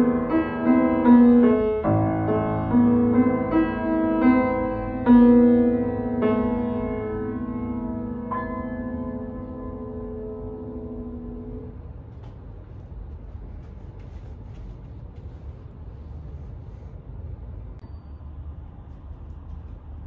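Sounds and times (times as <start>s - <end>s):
piano chord ringing out: 0.0s - 11.8s
low room rumble: 0.0s - 20.0s.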